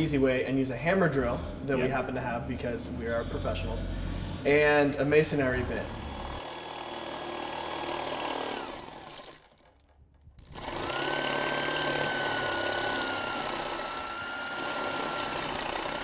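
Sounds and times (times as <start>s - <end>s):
hammer drill drilling into concrete: 5.4s - 9.7s, 10.4s - 16.0s.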